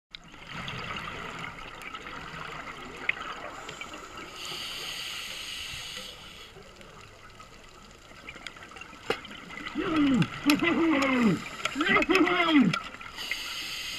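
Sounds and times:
underwater crackling hiss: 0:03.1 - 0:13.9
rushing hiss: 0:03.6 - 0:06.6, 0:13.2 - 0:13.9
clicks underwater: 0:08.3 - 0:13.0.

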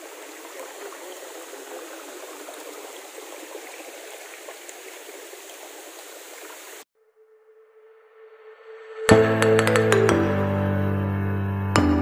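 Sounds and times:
stream water running over rocks: 0:00.0 - 0:06.8.

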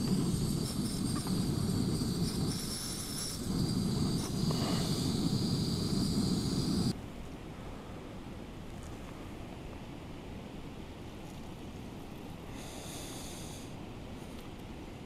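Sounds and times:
camping stove burning with roar: 0:00.0 - 0:07.0
water boiling in a pot: 0:00.0 - 0:07.0.

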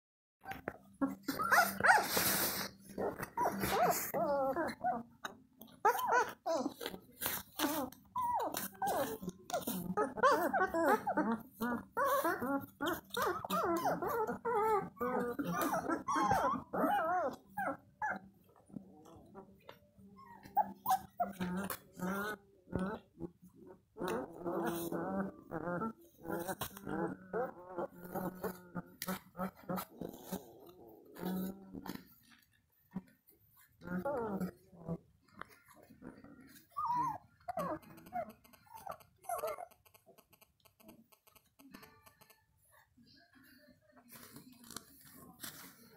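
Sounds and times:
puppies whining and squealing: 0:00.4 - 0:18.5, 0:19.7 - 0:23.2, 0:33.9 - 0:40.0.

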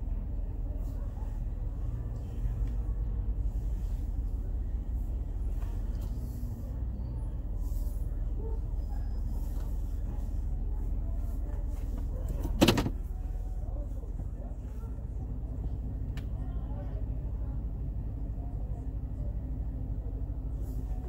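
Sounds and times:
car engine idling: 0:00.0 - 0:21.0
sharp clunk: 0:12.5 - 0:13.0.

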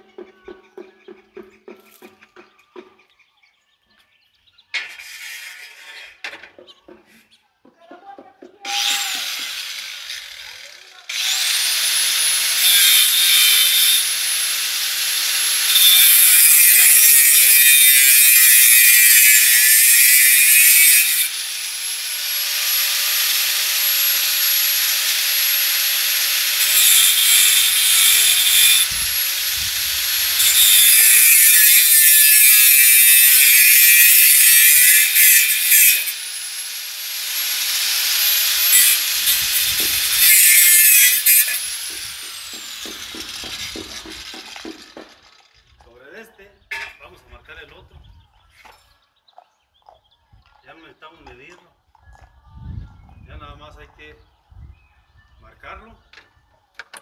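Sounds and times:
grinder cutting steel: 0:04.8 - 0:06.4, 0:08.7 - 0:45.8
light grinding: 0:04.8 - 0:06.6.

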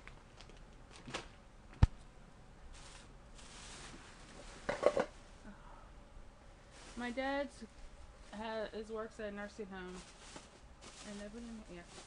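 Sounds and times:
rustling: 0:02.7 - 0:05.3, 0:06.6 - 0:08.6, 0:09.8 - 0:12.0.

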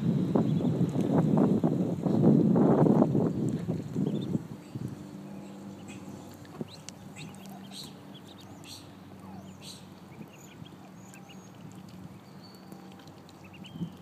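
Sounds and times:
steady low hum: 0:00.0 - 0:14.0
ducklings peeping: 0:00.4 - 0:00.8, 0:03.7 - 0:04.4, 0:05.4 - 0:14.0.

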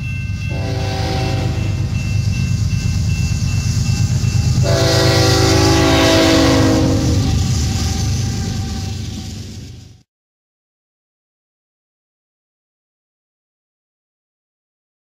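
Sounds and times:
freight train rumble: 0:00.0 - 0:10.0
locomotive air horn chord: 0:00.5 - 0:02.0, 0:04.6 - 0:09.2.

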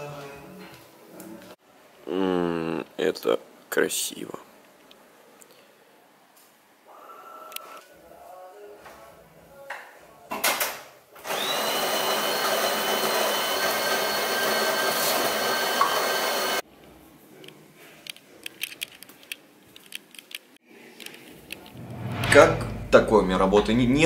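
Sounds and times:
coffee grinder whining: 0:11.2 - 0:16.6.

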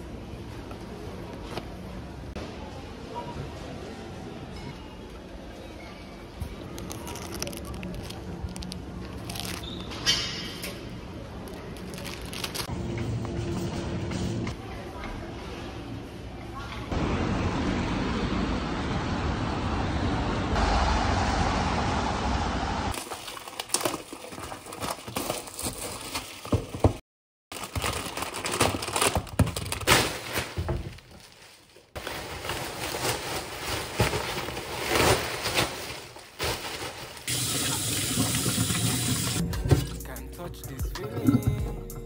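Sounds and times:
plastic packaging crinkling: 0:06.6 - 0:09.9, 0:11.4 - 0:12.7, 0:23.0 - 0:26.8, 0:27.5 - 0:37.3
low outdoor rumble: 0:16.9 - 0:22.9.

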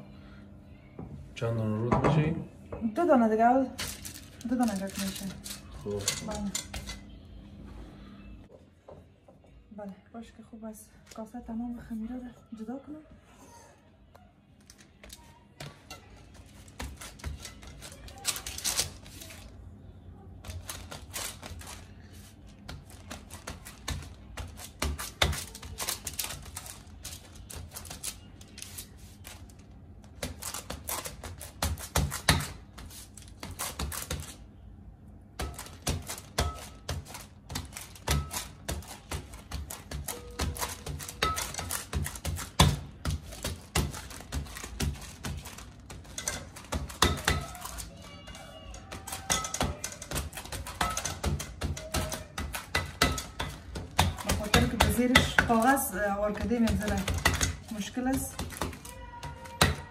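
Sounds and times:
fingertips patting dough: 0:14.6 - 0:19.5, 0:20.4 - 0:34.5, 0:35.4 - 0:59.9.

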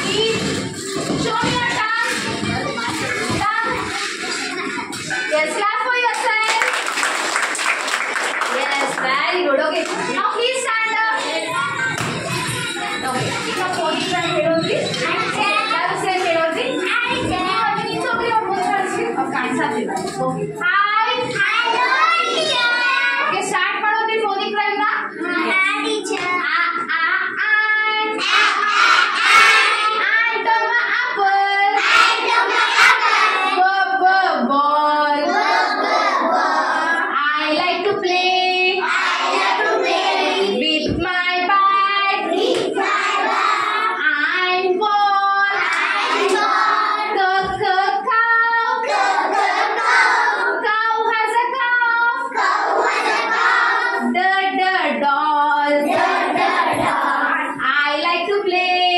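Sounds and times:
young children singing: 0:11.1 - 0:18.4, 0:21.2 - 0:23.4, 0:25.1 - 0:58.9
woman singing along: 0:33.6 - 0:35.3, 0:40.5 - 0:42.3, 0:44.0 - 0:45.6, 0:47.1 - 0:48.8, 0:54.0 - 0:56.0.

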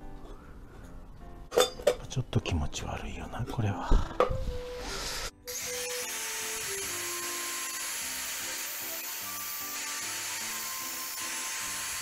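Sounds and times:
background music with simple melody: 0:00.0 - 0:12.0
angle grinder cutting metal: 0:05.5 - 0:12.0.

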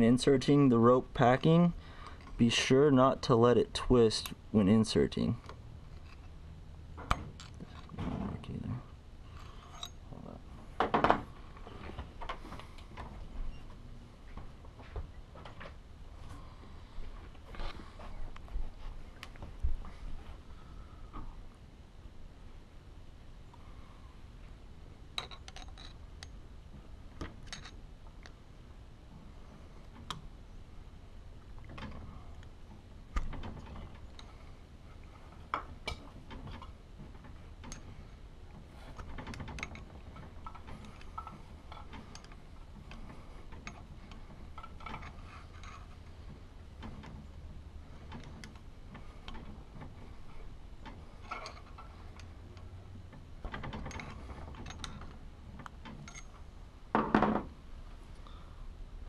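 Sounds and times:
metal tool clicks and scrapes: 0:09.3 - 0:10.0.

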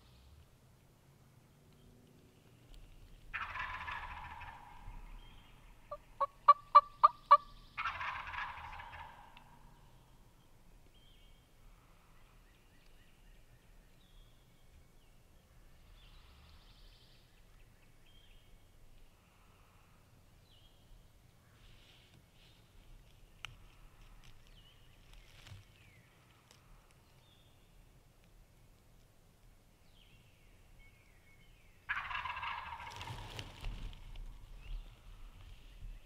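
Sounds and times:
turkey gobbling: 0:03.3 - 0:04.8, 0:05.9 - 0:09.6, 0:31.9 - 0:33.2
turkey yelps: 0:03.4 - 0:04.8, 0:05.9 - 0:09.5, 0:31.9 - 0:33.0.

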